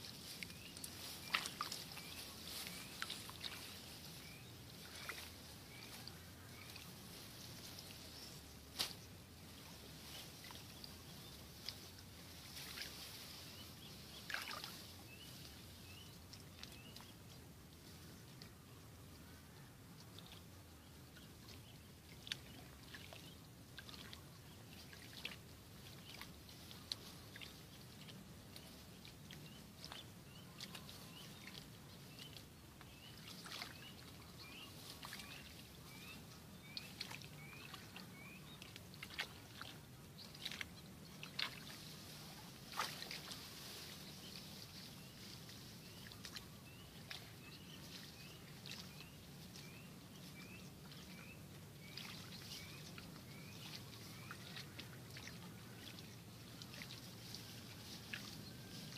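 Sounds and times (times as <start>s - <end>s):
plants rustling and snapping: 8.7s - 9.0s.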